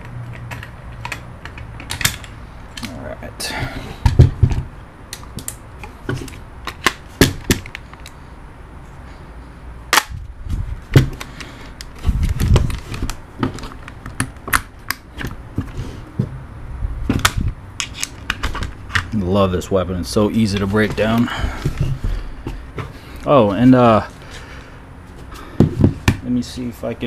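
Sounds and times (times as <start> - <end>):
rifle parts clicking and knocking: 0.0 - 3.0, 4.0 - 8.2.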